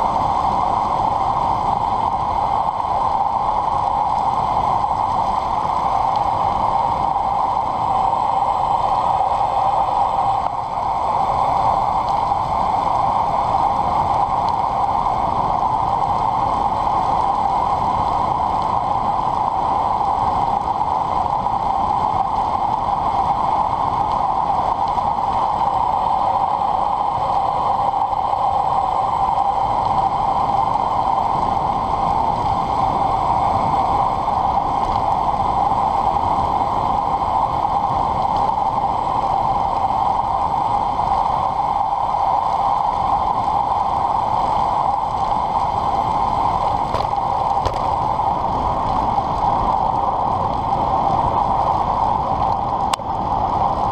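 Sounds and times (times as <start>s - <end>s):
bicycle road noise: 0.0s - 53.9s
rushing wind: 0.0s - 53.9s.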